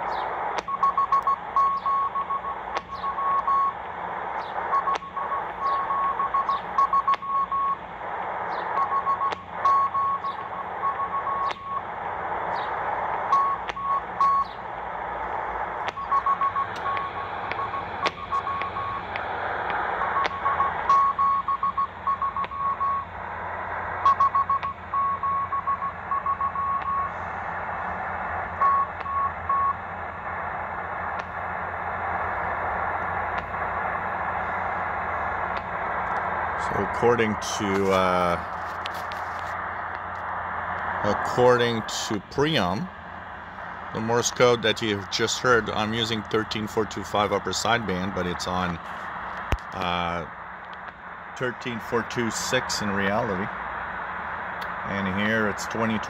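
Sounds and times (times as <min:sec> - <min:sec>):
shortwave static hiss: 0:00.0 - 0:56.0
static crackles: 0:00.0 - 0:56.0
morse code tone: 0:16.0 - 0:19.0.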